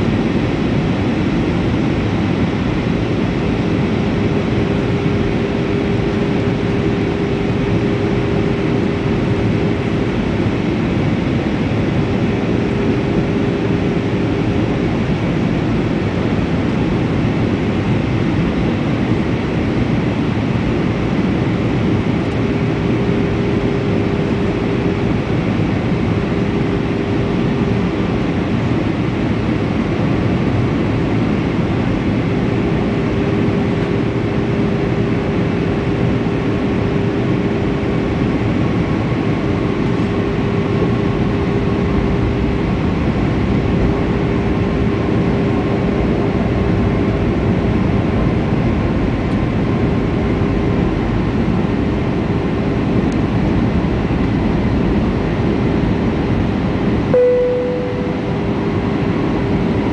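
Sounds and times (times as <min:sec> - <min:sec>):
jet engine roar in cabin: 0:00.0 - 0:59.9
low engine hum: 0:00.0 - 0:59.9
short tone: 0:57.1 - 0:58.9.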